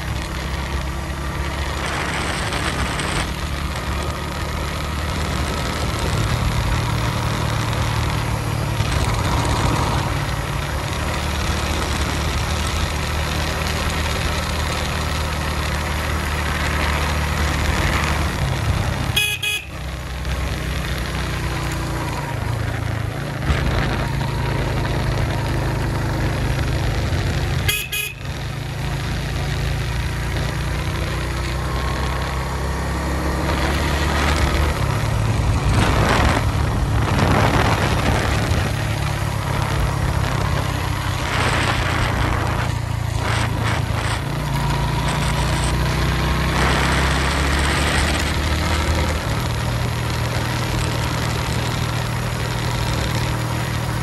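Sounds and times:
motorcycle engine running: 0.0s - 54.0s
vehicle horns tooting: 19.0s - 19.8s, 27.6s - 28.4s
wind noise: 21.9s - 27.6s, 33.4s - 54.0s.

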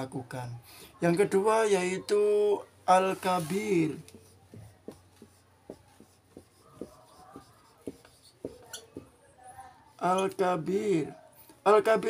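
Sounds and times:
marker writing on whiteboard: 2.9s - 11.2s.

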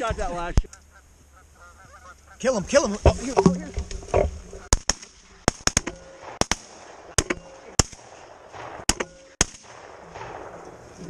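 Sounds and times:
shotgun blasts: 4.7s - 11.0s.

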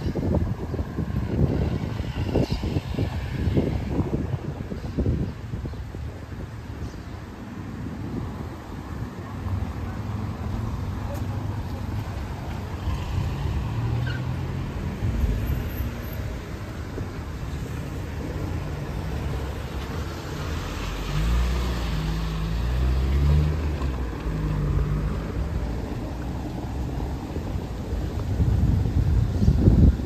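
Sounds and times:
cars driving past: 6.6s - 30.0s
vehicle engine passing close: 10.0s - 27.8s.

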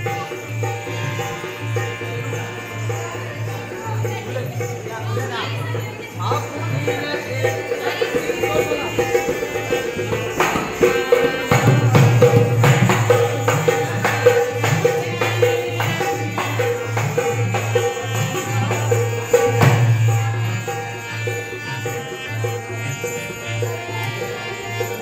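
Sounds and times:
hand percussion beat: 0.0s - 25.0s
harmonium melody over drone: 0.0s - 25.0s.

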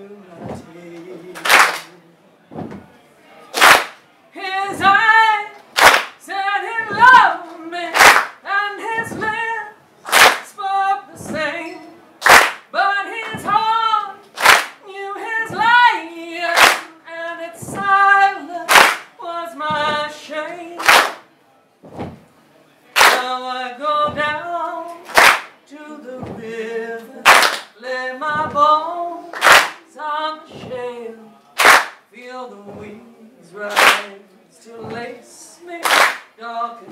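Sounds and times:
hand claps: 1.4s - 1.9s, 3.6s - 4.0s, 5.8s - 6.2s, 7.9s - 8.4s, 10.1s - 10.6s, 12.2s - 13.4s, 14.4s - 14.8s, 16.5s - 16.9s, 18.7s - 19.1s, 20.8s - 21.3s, 23.0s - 23.3s, 25.0s - 25.6s, 27.2s - 27.8s, 29.3s - 29.8s, 31.6s - 32.0s, 33.7s - 34.1s, 35.8s - 36.4s
woman singing blues: 4.4s - 5.6s, 6.2s - 12.0s, 12.7s - 20.9s, 23.1s - 31.3s, 32.1s - 36.9s.

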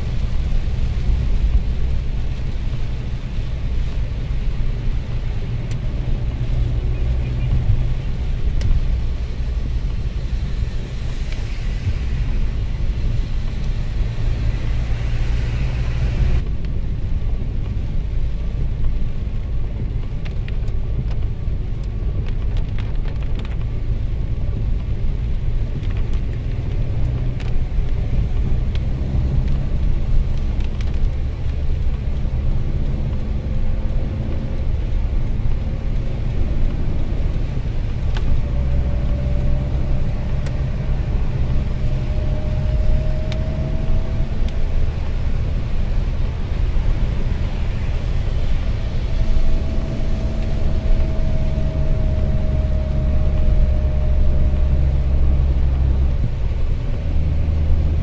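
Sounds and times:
tyres hissing on wet pavement: 0.0s - 19.2s, 22.7s - 58.0s
car road and engine rumble: 0.0s - 58.0s.

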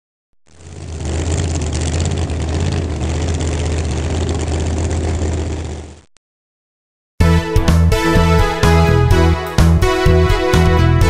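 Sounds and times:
engine running: 0.5s - 6.1s.

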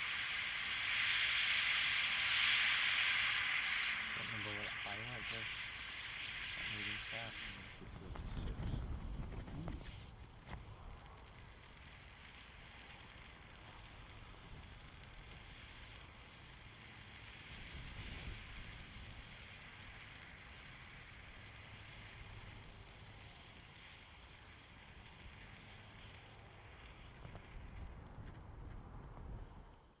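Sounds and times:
faint crackles: 0.0s - 30.0s
firework wheel hissing: 0.0s - 30.0s
wind rumble on microphone: 6.4s - 11.8s, 17.4s - 23.6s, 24.3s - 30.0s.

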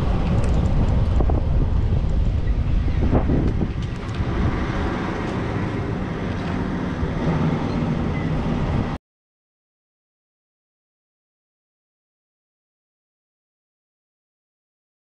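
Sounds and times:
wind buffeting microphone: 0.0s - 9.0s.

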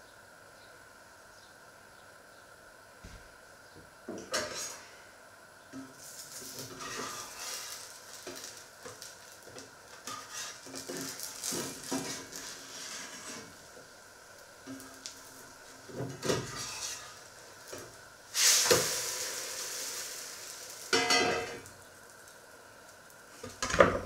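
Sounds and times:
pancake sizzling in frying pan: 5.7s - 24.0s
knife scraping a pan: 6.6s - 7.8s, 10.0s - 13.6s, 16.2s - 17.2s
metal clang: 21.0s - 21.6s.

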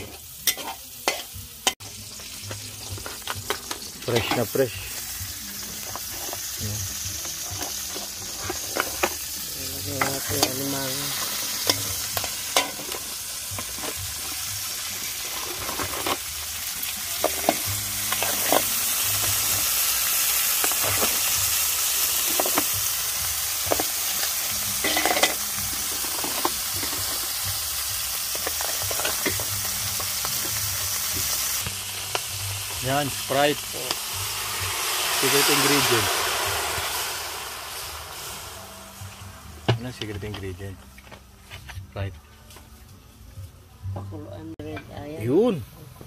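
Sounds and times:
crabs sizzling in hot oil: 0.0s - 41.0s
utensil scraping pan: 7.2s - 9.3s, 15.2s - 16.2s, 17.2s - 18.8s.

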